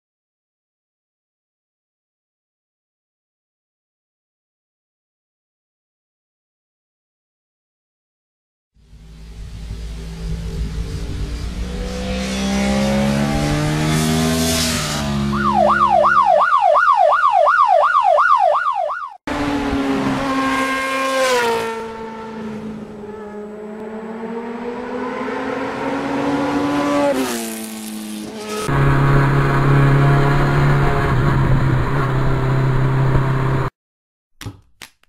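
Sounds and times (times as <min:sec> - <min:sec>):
engine revving: 0:08.8 - 0:16.3, 0:19.3 - 0:33.7
warbling siren-like tone: 0:15.2 - 0:19.2.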